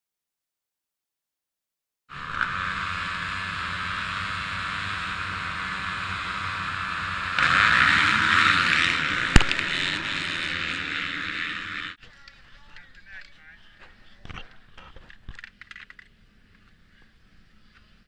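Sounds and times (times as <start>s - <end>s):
motocross bike engines revving: 2.1s - 12.1s
sharp crack: 2.3s - 11.8s.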